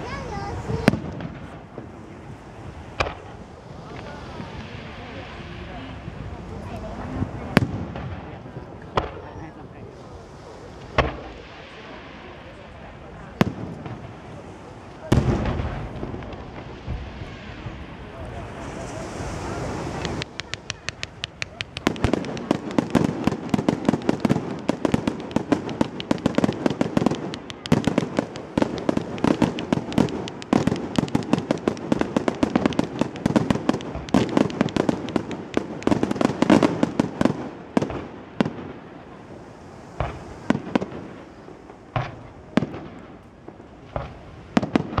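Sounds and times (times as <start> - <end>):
fireworks bursts and bangs: 0.0 - 45.0.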